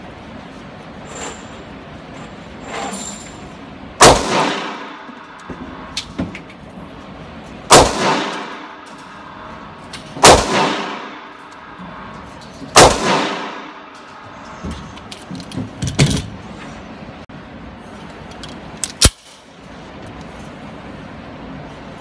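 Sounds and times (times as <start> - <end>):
handgun shots with echo: 4.0 - 5.2, 7.7 - 9.2, 10.1 - 11.3, 12.7 - 13.9.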